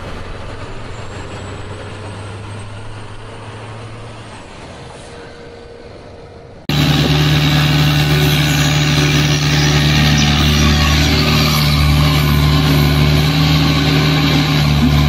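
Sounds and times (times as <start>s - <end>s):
truck engine droning: 0.0s - 15.0s.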